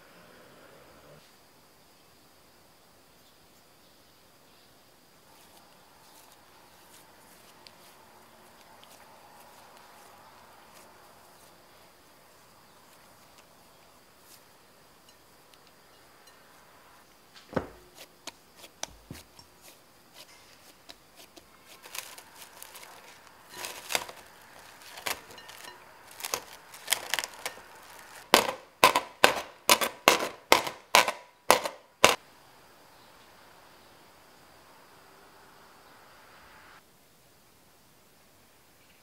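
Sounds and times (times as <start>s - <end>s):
cling film crackling: 17.6s - 32.2s
sharp pops of wrap: 20.2s - 32.2s.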